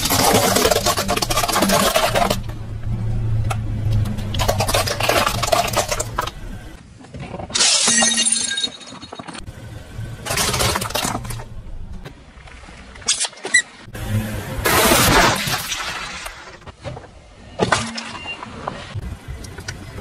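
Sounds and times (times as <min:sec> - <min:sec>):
tyre crushing candy and plastic: 0:00.0 - 0:02.6, 0:04.0 - 0:06.5, 0:10.2 - 0:11.5
tyre crushing shells: 0:00.0 - 0:02.6, 0:04.2 - 0:06.4
car engine hum: 0:02.0 - 0:06.9, 0:09.4 - 0:13.0, 0:13.8 - 0:15.2.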